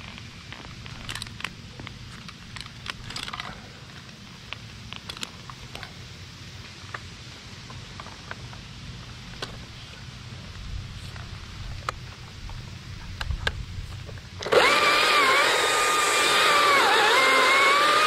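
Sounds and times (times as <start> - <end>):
steady low rumble: 0.0 - 14.4
climbing hardware clicking: 0.7 - 3.6.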